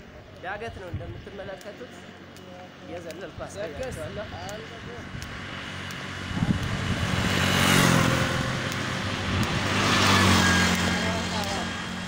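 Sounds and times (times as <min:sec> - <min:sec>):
engine hum: 0:00.0 - 0:12.0
tyre and road noise: 0:00.0 - 0:12.0
vehicles passing on road: 0:00.0 - 0:12.0
motorcycle: 0:04.0 - 0:12.0.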